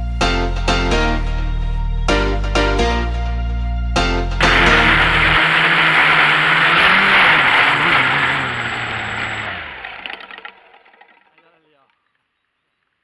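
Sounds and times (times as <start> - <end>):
high whine: 4.4 - 10.5
drone motors buzzing: 4.4 - 11.2.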